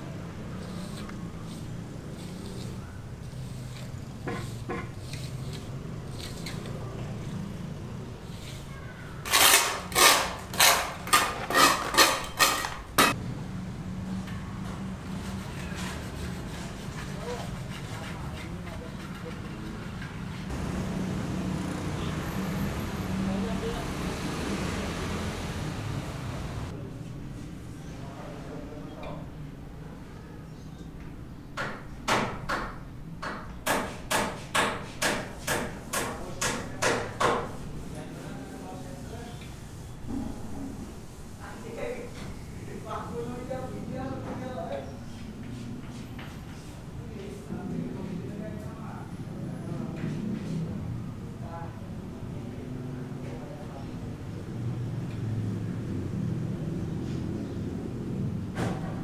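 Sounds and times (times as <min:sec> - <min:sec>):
hand tool scraping concrete: 0:00.5 - 0:07.4, 0:08.2 - 0:08.7, 0:09.3 - 0:13.2.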